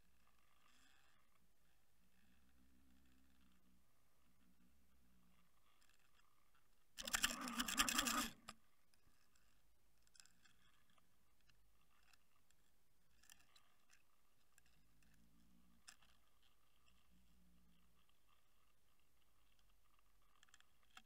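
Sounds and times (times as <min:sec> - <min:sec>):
camera rig clicking and rattling: 0:07.0 - 0:08.6.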